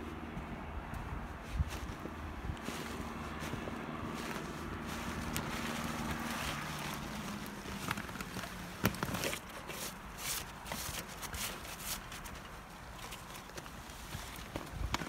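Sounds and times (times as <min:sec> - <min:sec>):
low engine hum: 0:00.0 - 0:09.2
sharp clicks and crunches: 0:04.1 - 0:15.0.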